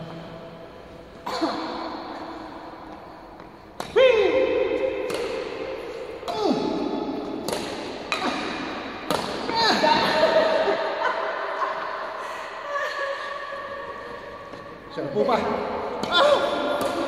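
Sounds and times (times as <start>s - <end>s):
ringing hall echo: 0.0s - 17.0s
racket hitting shuttlecock: 3.4s - 10.2s, 16.0s - 17.0s.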